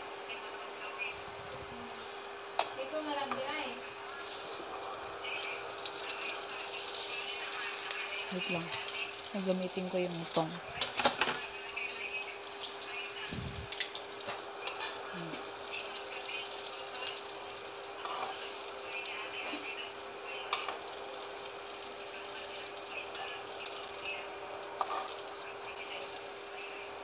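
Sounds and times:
food sizzling in hot oil: 0.0s - 27.0s
metal tongs clicking on pan: 20.5s - 21.0s.

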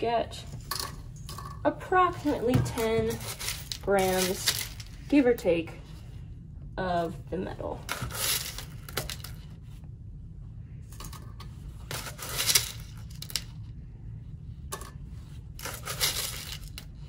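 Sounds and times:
metal pellets clinking and rattling: 3.1s - 5.0s, 15.6s - 16.9s.

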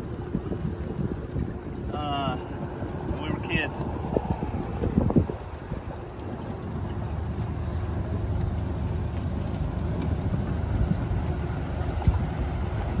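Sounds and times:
boat motor rumbling: 0.0s - 13.0s.

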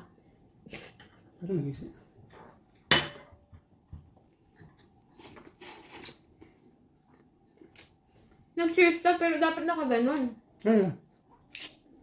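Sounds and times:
faint eating noises: 0.0s - 12.0s
tableware clink: 2.9s - 3.4s.

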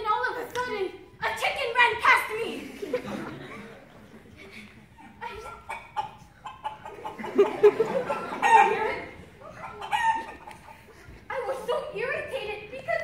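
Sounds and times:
chicken clucking: 5.4s - 10.9s.

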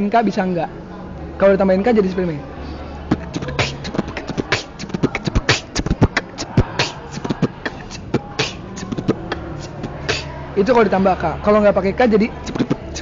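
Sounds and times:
beatboxed bass drum kicks: 3.1s - 10.3s, 12.4s - 13.0s
hi-hat-like mouth clicks: 3.1s - 10.3s, 12.4s - 13.0s.

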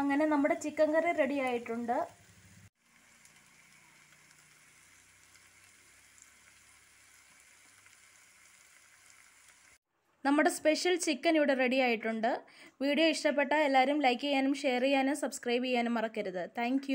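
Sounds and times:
curry sizzling in a pan: 0.0s - 9.8s.

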